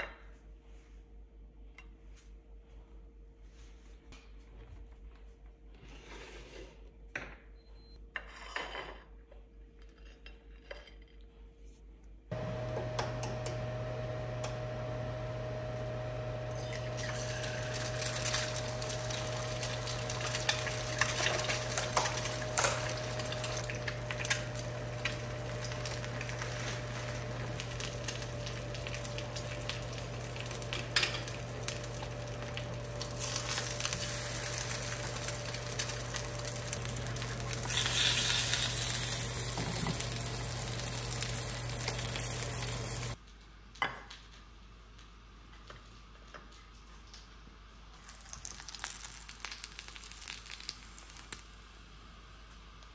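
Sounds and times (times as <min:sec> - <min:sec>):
constant low hum: 0:09.6 - 0:45.8
egg sizzling in a pan: 0:16.5 - 0:43.2, 0:48.0 - 0:51.9.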